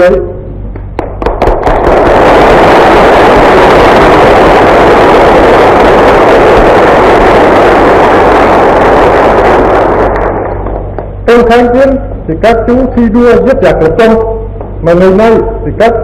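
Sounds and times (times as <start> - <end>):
crowd clapping: 0.8 - 2.1, 9.3 - 11.2.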